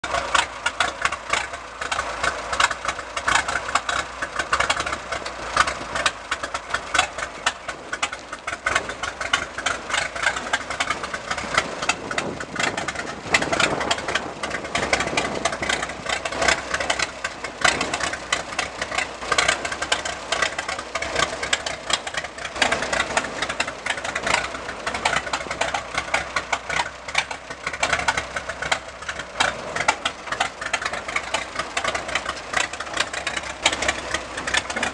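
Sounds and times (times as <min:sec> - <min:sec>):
tractor engine running: 0:00.0 - 0:34.9.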